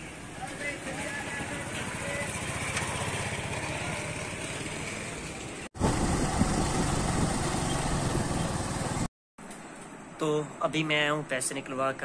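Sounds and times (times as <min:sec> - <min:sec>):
vehicle engine running: 0:00.8 - 0:09.1.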